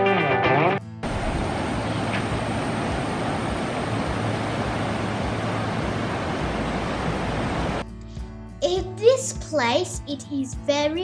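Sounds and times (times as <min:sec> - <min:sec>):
guitar music: 0:00.0 - 0:01.2, 0:07.8 - 0:11.0
river rushing over rocks: 0:01.0 - 0:07.8.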